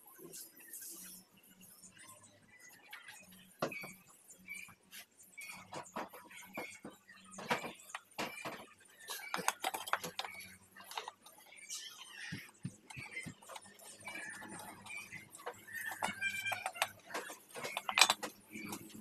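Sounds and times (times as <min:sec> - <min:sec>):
pliers clicking and tapping: 0:15.3 - 0:18.8.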